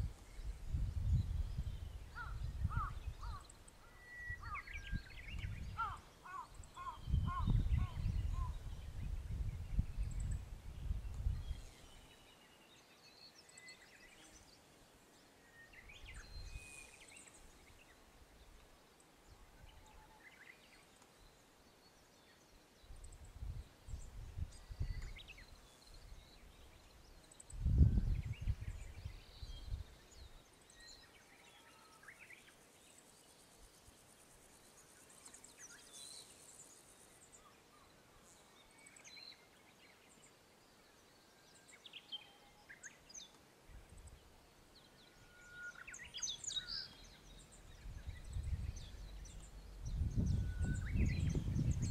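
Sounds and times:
wind rumbling on microphone: 0:00.0 - 0:03.6, 0:04.2 - 0:12.1, 0:22.8 - 0:30.3, 0:46.4 - 0:51.9.

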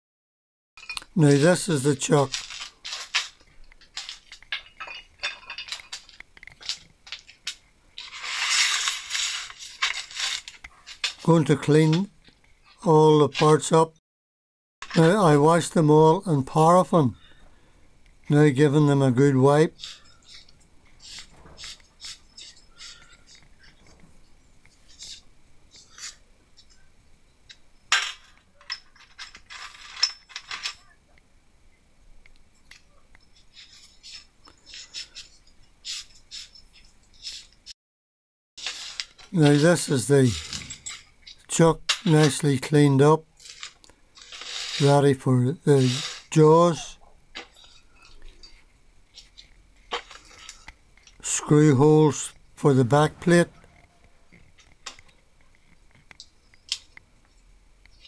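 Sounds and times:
small metal parts clinking in a tray: 0:02.0 - 0:11.3, 0:27.9 - 0:31.0, 0:38.6 - 0:42.4, 0:43.4 - 0:44.9
bristle brush scrubbing metal parts: 0:08.0 - 0:11.4, 0:19.7 - 0:23.9, 0:33.4 - 0:37.6, 0:38.6 - 0:42.8, 0:43.4 - 0:51.2.

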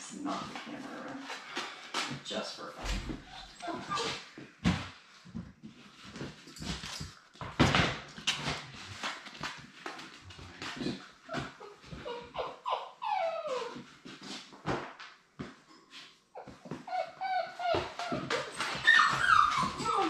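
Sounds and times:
clicks and knocks on hard floor: 0:01.3 - 0:12.0, 0:14.5 - 0:15.7, 0:17.6 - 0:20.0
puppies whimpering: 0:03.4 - 0:04.2, 0:11.3 - 0:13.8, 0:16.4 - 0:20.0.

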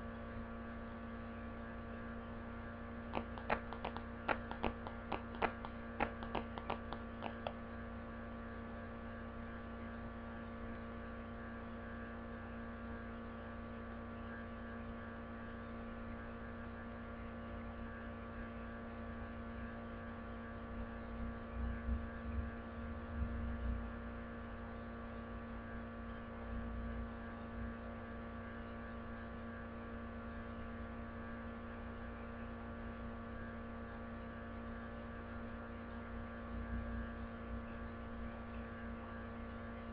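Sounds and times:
electrical hum: 0:00.0 - 0:39.9
quick clicks: 0:03.1 - 0:07.6.

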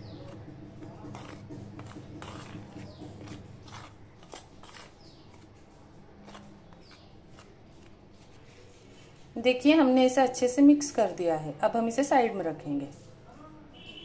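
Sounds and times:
metal spoon scraping steel plate: 0:01.1 - 0:05.4.

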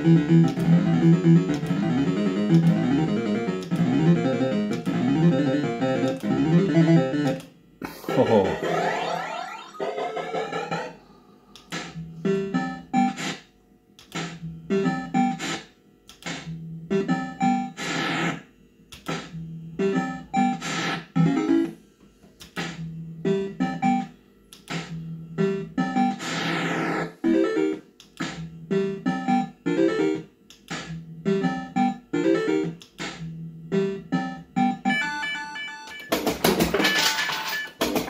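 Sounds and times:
electronic falling sweep: 0:08.5 - 0:11.0.

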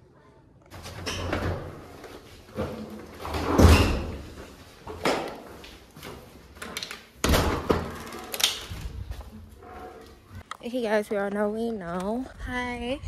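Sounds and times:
door opening and shutting: 0:00.7 - 0:05.3, 0:06.1 - 0:10.2.

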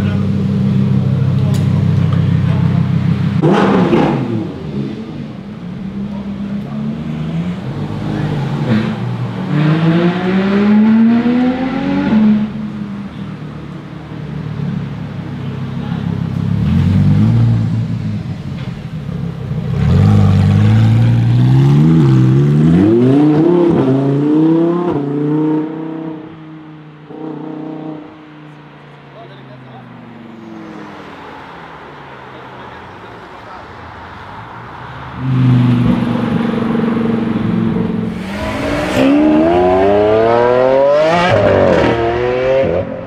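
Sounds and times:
car engine accelerating hard: 0:00.0 - 0:12.8, 0:35.1 - 0:43.0.

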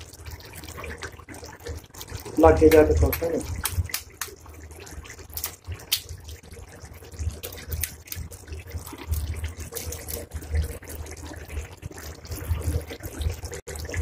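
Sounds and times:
gravy simmering and bubbling: 0:00.0 - 0:14.0
pops and splutters: 0:00.0 - 0:14.0
eggs dropped into liquid: 0:02.4 - 0:04.4.

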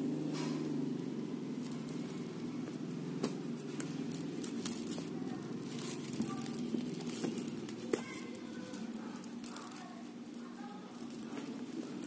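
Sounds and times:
steady low hum: 0:00.0 - 0:12.0
plastic wrap crinkling: 0:03.2 - 0:12.0.

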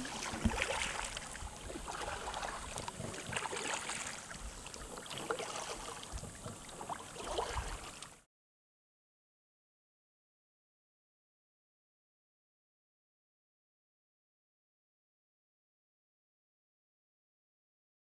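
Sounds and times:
waves lapping against kayak hull: 0:00.0 - 0:08.2.

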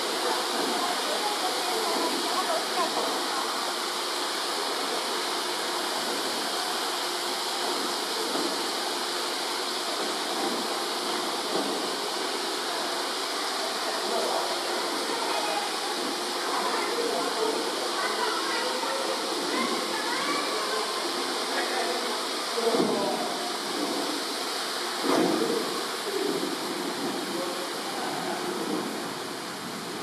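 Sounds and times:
waterfall rushing: 0:00.0 - 0:30.0.

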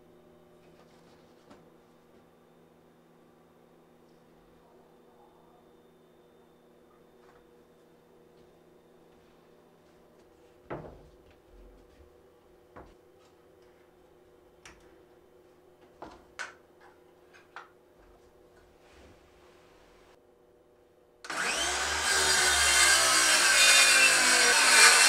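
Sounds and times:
faint steady hum: 0:00.0 - 0:21.3.

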